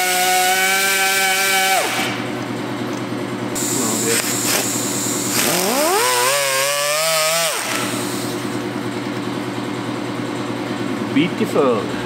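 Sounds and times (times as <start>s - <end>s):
steady background hum: 0.1s - 12.0s
rotary grinder whining: 3.6s - 8.5s.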